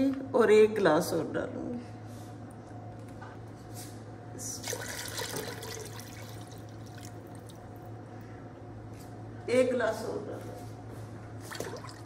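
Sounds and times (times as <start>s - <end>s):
water pouring into a pot: 4.6s - 7.9s.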